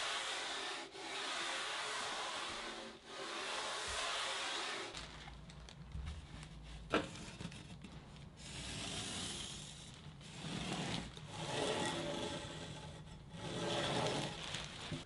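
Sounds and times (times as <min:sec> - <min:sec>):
hand-sanding foam: 0:00.0 - 0:04.9
pencil scraping along wood: 0:00.0 - 0:04.9, 0:08.4 - 0:14.2.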